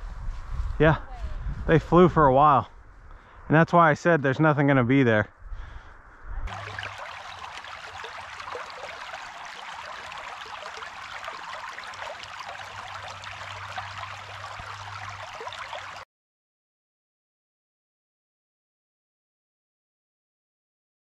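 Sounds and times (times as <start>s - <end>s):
creek babbling over rocks: 6.5s - 16.0s.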